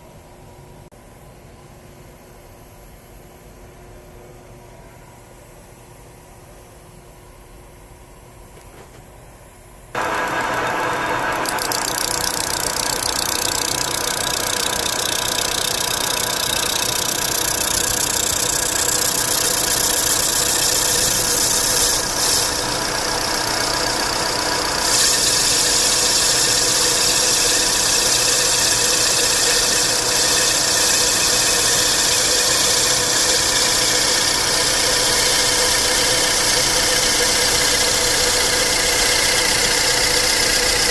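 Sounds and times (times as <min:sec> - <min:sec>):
metal lathe running: 0:10.0 - 0:40.9.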